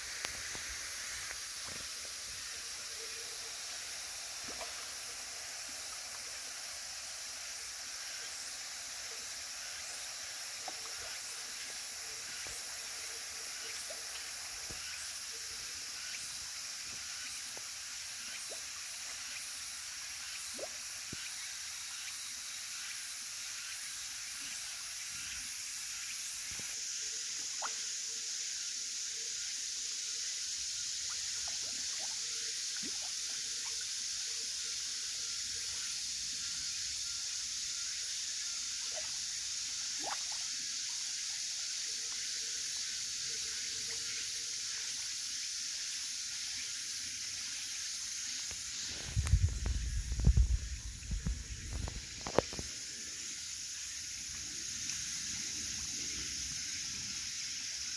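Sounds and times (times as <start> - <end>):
steady high hiss: 0.0 - 57.9
water drips and plops: 40.0 - 40.4.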